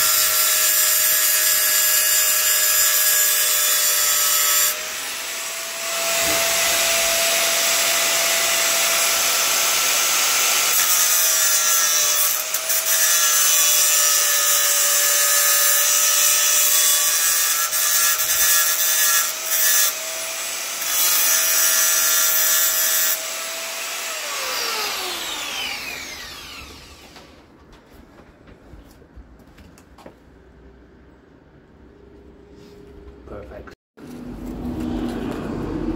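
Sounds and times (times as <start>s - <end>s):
power tool whining: 2.6s - 15.6s, 18.8s - 27.4s.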